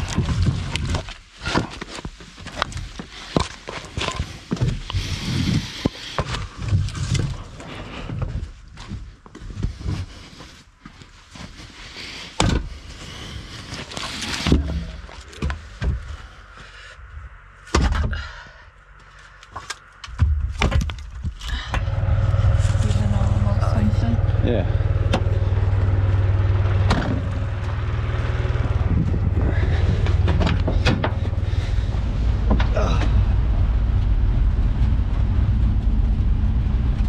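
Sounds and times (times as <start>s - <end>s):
logs clunking and knocking: 13.8s - 16.3s, 17.7s - 18.4s, 19.5s - 22.1s, 26.8s - 27.8s, 28.6s - 33.2s
vehicle engine humming: 21.4s - 37.0s.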